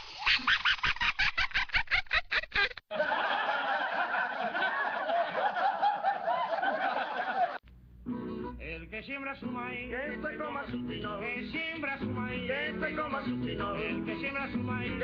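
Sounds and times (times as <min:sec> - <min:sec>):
rapid staccato laughter: 0:00.3 - 0:07.6.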